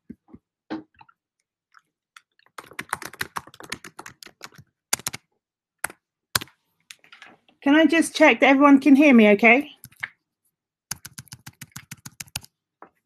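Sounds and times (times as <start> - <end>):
keyboard typing: 2.2 - 7.2, 9.8 - 10.1, 10.9 - 12.5.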